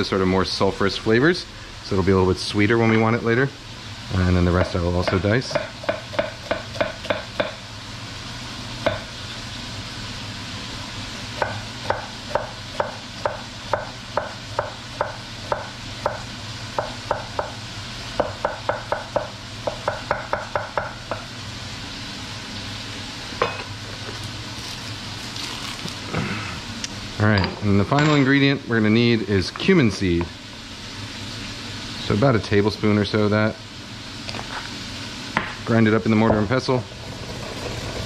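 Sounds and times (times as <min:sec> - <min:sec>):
meat sizzling in pot: 0:00.0 - 0:38.0
knife chopping onion on board: 0:04.6 - 0:07.6, 0:08.8 - 0:09.1, 0:11.4 - 0:17.6, 0:18.2 - 0:21.3.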